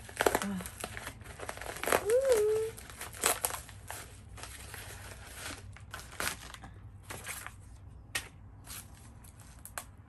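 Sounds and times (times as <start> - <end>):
padded envelope crinkling: 0.0 - 7.8.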